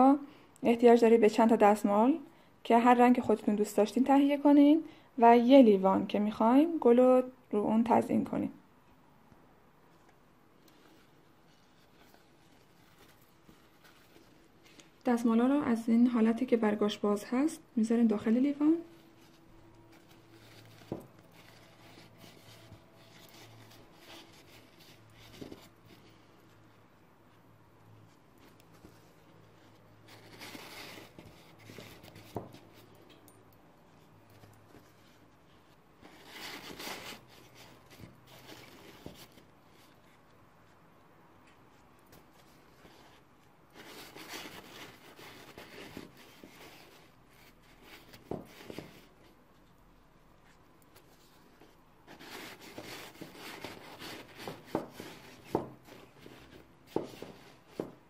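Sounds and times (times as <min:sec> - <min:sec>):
paper napkins rustling: 0:09.9 - 0:15.6, 0:18.1 - 0:33.1, 0:33.9 - 0:40.2, 0:41.7 - 0:49.6, 0:50.4 - 0:58.0.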